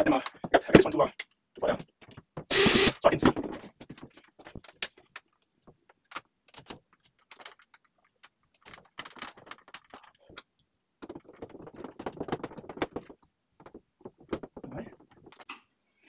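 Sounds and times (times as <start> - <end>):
hands clicking and scraping: 3.5 - 15.7.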